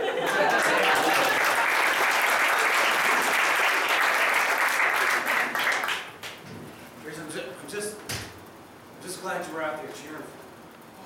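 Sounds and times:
audience applauding: 0:00.2 - 0:06.4.

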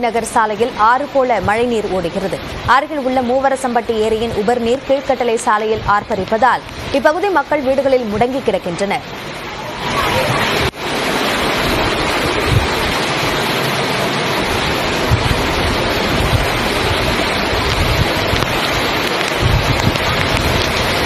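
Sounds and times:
floodwater rushing: 0:00.0 - 0:21.0
wind bumps on microphone: 0:05.6 - 0:07.1, 0:09.9 - 0:13.4, 0:14.4 - 0:21.0.

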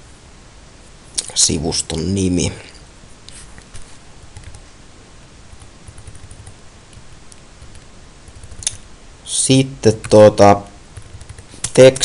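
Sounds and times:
low hiss: 0:00.0 - 0:12.0
keyboard and mouse clicks: 0:06.0 - 0:08.8, 0:11.0 - 0:12.0.

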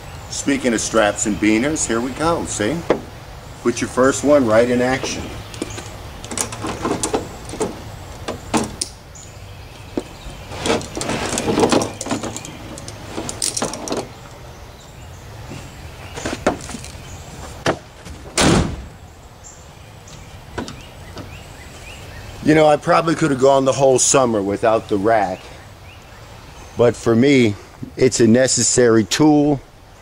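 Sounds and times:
tailgate shutting with a bang: 0:04.9 - 0:08.9, 0:17.6 - 0:19.0
carabiner clips clinking: 0:10.8 - 0:14.1, 0:16.6 - 0:17.0.

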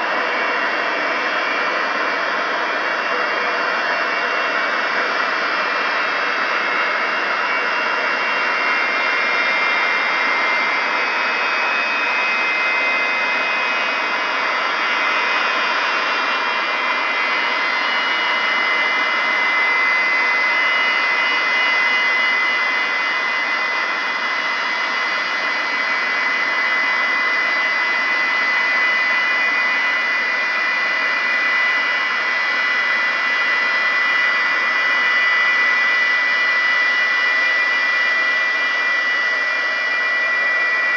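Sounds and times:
jet engines running with whine: 0:00.0 - 0:40.9.

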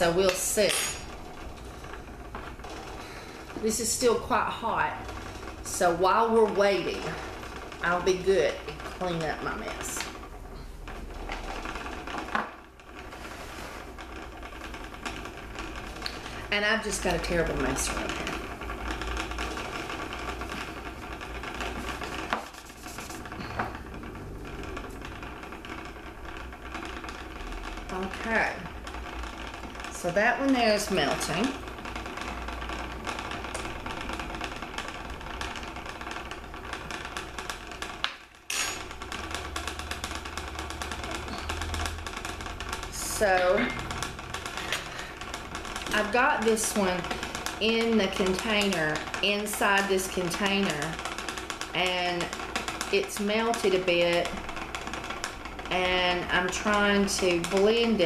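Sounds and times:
container rattling in boiling water: 0:00.0 - 0:58.0
paper towel scraping plastic cup: 0:13.0 - 0:14.0, 0:21.6 - 0:25.0.

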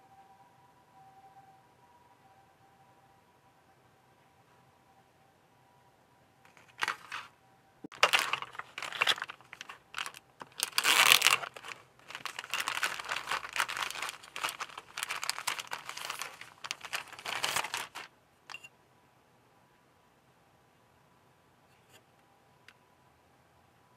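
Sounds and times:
plastic bags crinkling: 0:06.5 - 0:07.3, 0:07.9 - 0:18.1.

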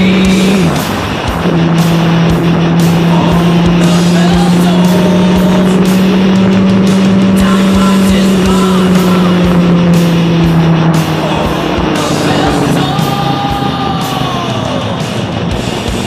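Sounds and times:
motorcycle engine cruising: 0:00.0 - 0:16.0
rock music: 0:00.0 - 0:16.0.

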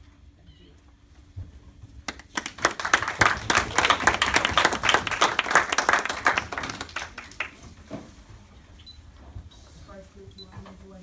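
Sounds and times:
small audience applauding: 0:02.1 - 0:07.8.

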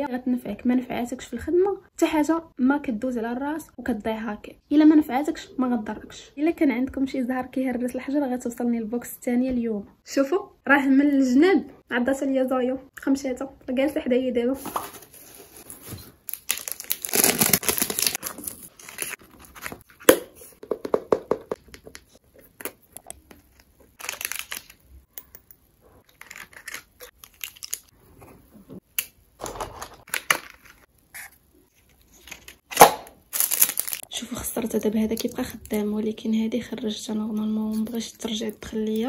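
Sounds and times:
paper wrapping rustling: 0:14.6 - 0:20.6, 0:31.7 - 0:34.0.

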